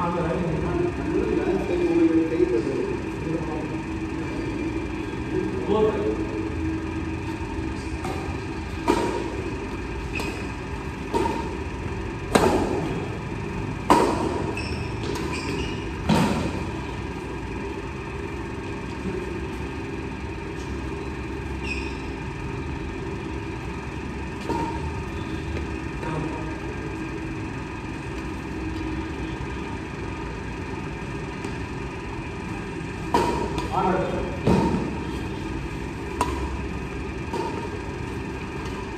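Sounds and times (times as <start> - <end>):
steady low hum: 0.0 - 38.9
badminton racket hitting shuttlecock: 7.9 - 13.0, 13.8 - 16.6, 24.3 - 25.0, 33.0 - 33.9, 34.5 - 38.9.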